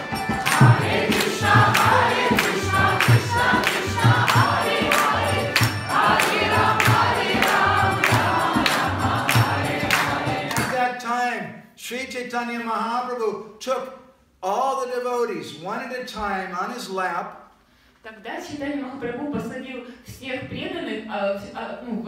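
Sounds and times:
group of voices singing: 0.0s - 10.7s
steady percussion beat: 0.0s - 10.9s.

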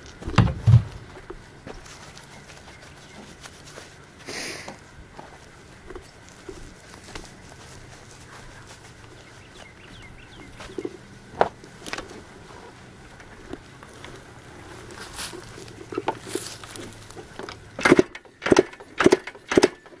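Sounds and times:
handling knocks clicks and rustles: 0.0s - 4.0s, 4.7s - 20.0s
sharp clicks: 17.5s - 20.0s.

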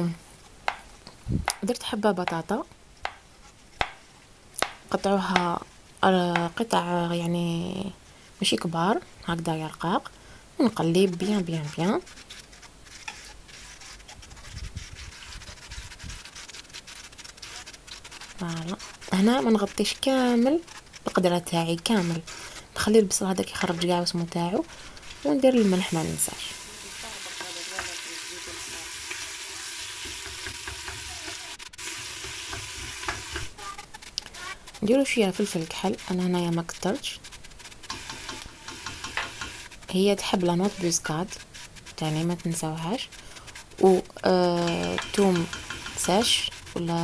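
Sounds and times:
food sizzling in oil: 10.8s - 47.0s.

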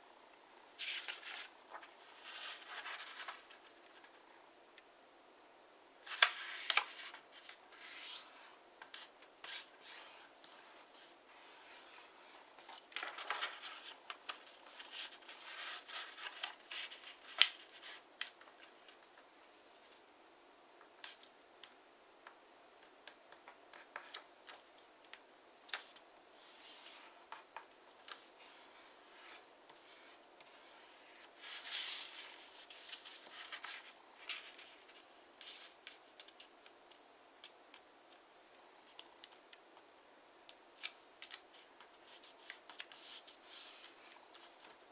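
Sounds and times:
paper rustling and sliding: 0.8s - 4.2s, 6.0s - 18.0s, 26.4s - 36.0s
paper crackling as folded: 6.0s - 19.1s.

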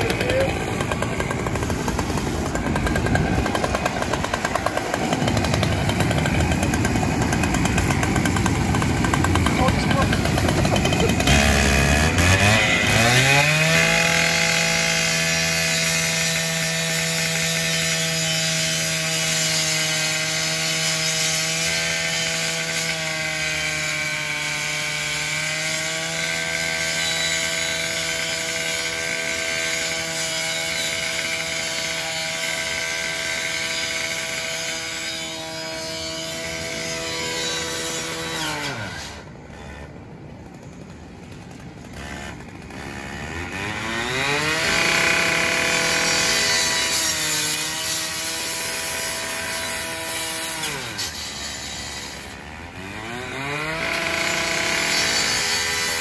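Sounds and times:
saw blade grinding sheet metal: 0.0s - 40.0s, 41.9s - 56.0s
gas-powered saw engine: 0.0s - 56.0s.

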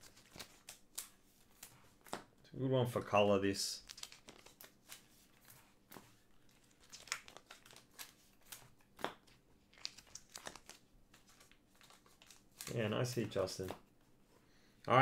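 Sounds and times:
cards and plastic sleeves crinkling: 0.0s - 2.3s, 3.1s - 14.2s.

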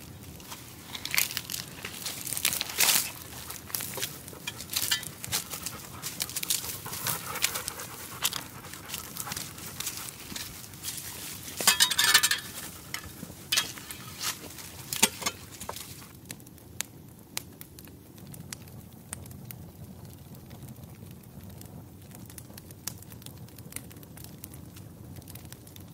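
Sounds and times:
footsteps through dry undergrowth: 0.0s - 16.1s
leaves and twigs crunching: 0.0s - 16.1s.

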